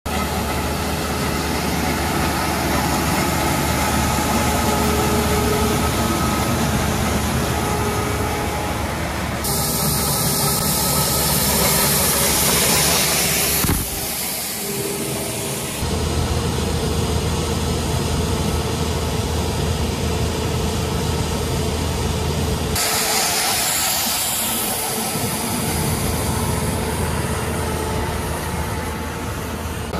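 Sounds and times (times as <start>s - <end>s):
machine engine hum: 0.1s - 29.9s
loud hissing from marking unit: 7.6s - 15.8s, 22.8s - 29.3s.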